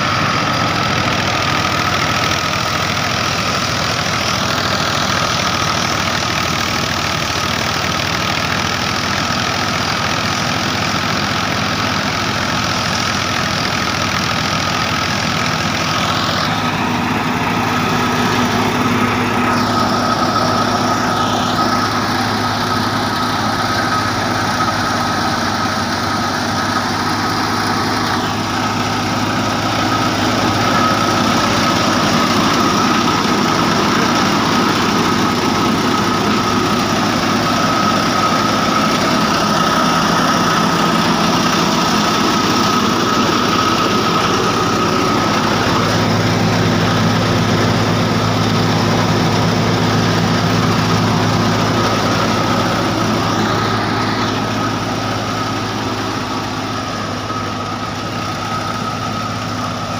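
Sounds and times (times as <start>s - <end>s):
thresher engine drone: 0.0s - 59.9s
high whine: 14.6s - 59.9s.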